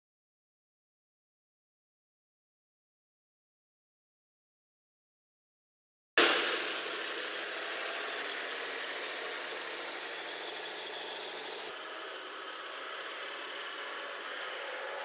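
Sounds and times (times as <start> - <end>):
heavy truck engines running: 6.5 - 15.0.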